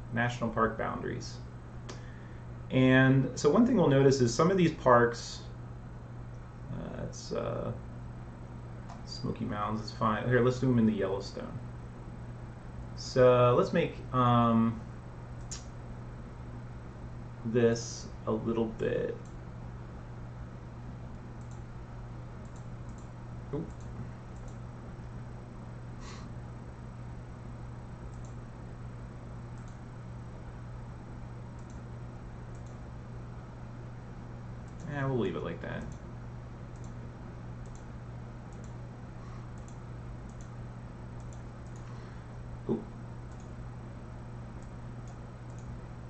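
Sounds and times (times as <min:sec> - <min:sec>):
low electrical hum: 0:00.0 - 0:46.0
computer mouse clicks: 0:21.4 - 0:21.7, 0:22.4 - 0:24.6, 0:28.1 - 0:28.4, 0:29.6 - 0:29.8, 0:31.6 - 0:31.8, 0:32.5 - 0:32.8, 0:34.6 - 0:34.9, 0:36.7 - 0:37.0, 0:37.6 - 0:37.9, 0:38.5 - 0:38.8, 0:39.6 - 0:40.6, 0:41.2 - 0:41.9, 0:43.3 - 0:43.6, 0:44.6 - 0:45.7.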